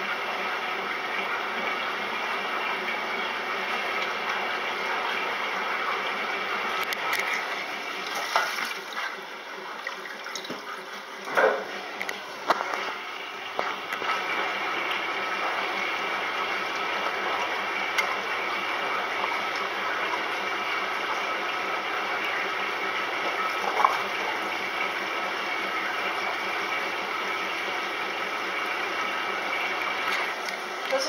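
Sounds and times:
water rushing into washer tub: 0.0s - 31.0s
washer clicks: 10.3s - 12.8s.

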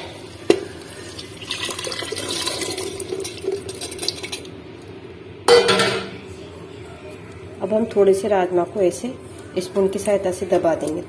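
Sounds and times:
beans and water pouring into gravy: 1.0s - 4.4s.

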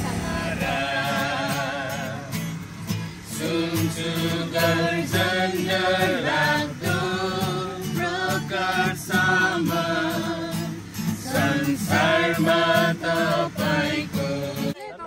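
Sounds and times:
song with singing over a beat: 0.0s - 15.0s.

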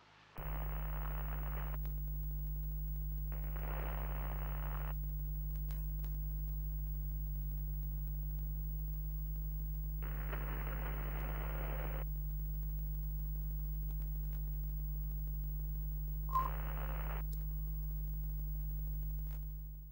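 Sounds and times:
low electrical hum: 0.4s - 19.9s
static hiss bursts: 0.4s - 19.9s
short beep: 16.3s - 16.6s.

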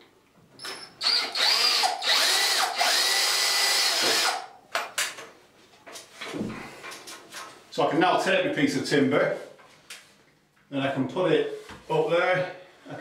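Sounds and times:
cordless drill driving a screw: 1.0s - 4.5s.

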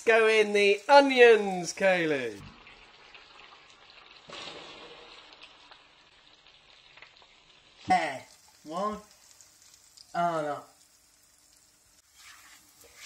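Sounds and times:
person's voice: 0.0s - 2.5s, 7.9s - 9.1s, 10.1s - 10.7s
onion sizzling in butter: 0.0s - 13.0s.

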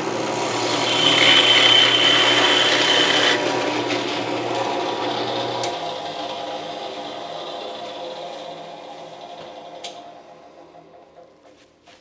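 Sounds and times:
drill bit boring into wood: 0.0s - 6.7s
drill press motor humming: 0.0s - 11.5s.

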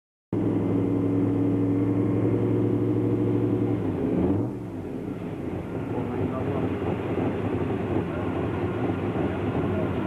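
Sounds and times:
engine running: 0.3s - 10.0s.

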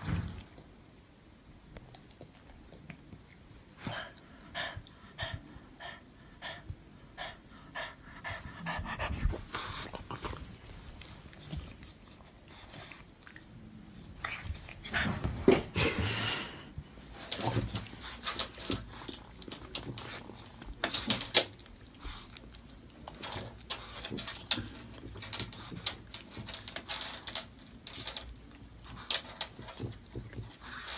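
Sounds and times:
dog panting: 3.8s - 13.4s, 17.0s - 30.9s.

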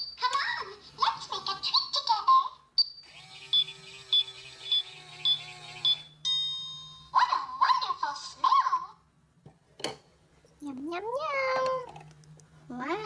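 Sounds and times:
toy microwave whirring hum: 0.0s - 7.1s
ringing ding: 6.3s - 7.1s.

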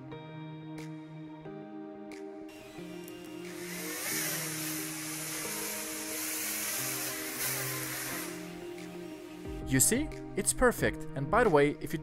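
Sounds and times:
background music: 0.0s - 12.0s
drone propellers buzzing: 2.5s - 9.5s.

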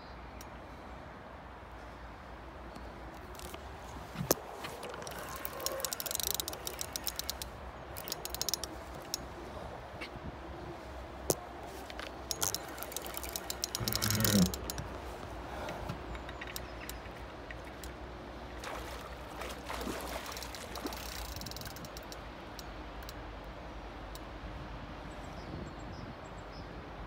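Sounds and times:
fishing reel clicking: 4.3s - 9.3s, 12.0s - 15.0s, 20.2s - 23.2s.

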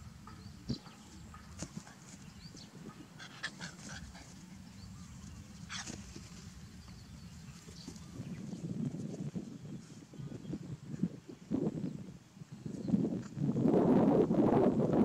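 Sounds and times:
steady low rumble: 0.0s - 11.8s.

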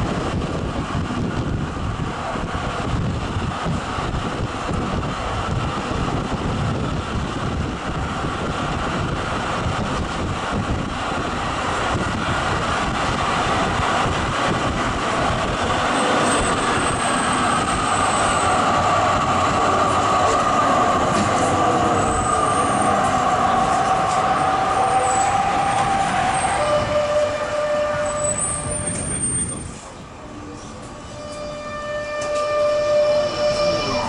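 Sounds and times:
tram wheels rolling on rails: 0.0s - 34.0s
high thin wheel squeal: 15.9s - 18.6s, 21.9s - 23.1s, 23.8s - 29.9s, 30.6s - 34.0s.

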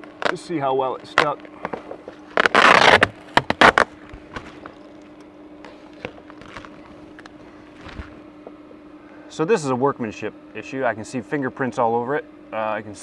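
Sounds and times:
tape ripping off plastic: 0.0s - 4.8s, 5.7s - 8.2s
plastic sheet crinkling: 0.0s - 5.0s, 5.7s - 8.2s
faint steady hum: 0.0s - 13.0s.

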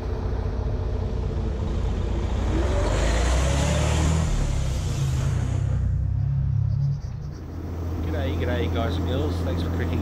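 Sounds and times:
diesel truck engine rumble: 3.4s - 10.0s.

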